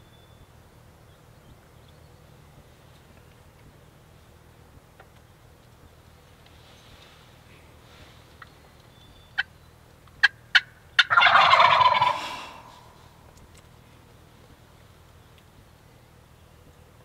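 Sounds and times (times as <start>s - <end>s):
turkey gobbling: 10.2s - 13.0s.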